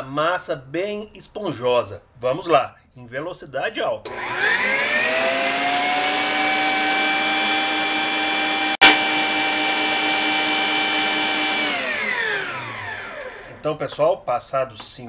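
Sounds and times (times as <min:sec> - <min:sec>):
stand mixer whisk whining: 0:04.1 - 0:13.6.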